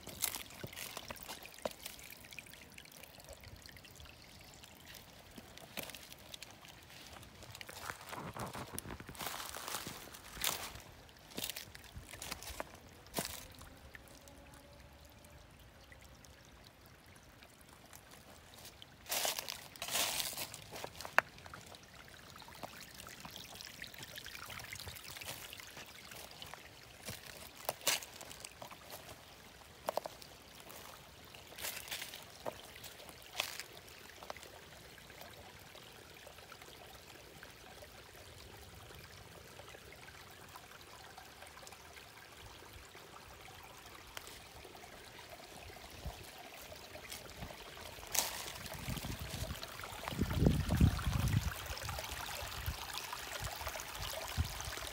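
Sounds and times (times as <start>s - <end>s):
creek trickling over rocks: 0.0s - 54.9s.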